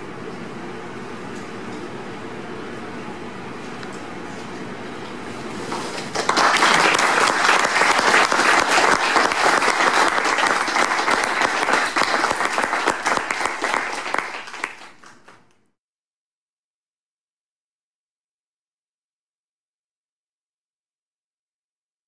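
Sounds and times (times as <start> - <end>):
audience applauding: 6.0 - 15.5.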